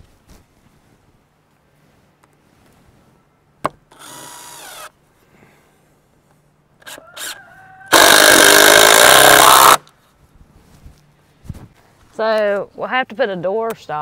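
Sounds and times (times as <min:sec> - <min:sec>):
power saw cutting wood: 0:06.8 - 0:09.8.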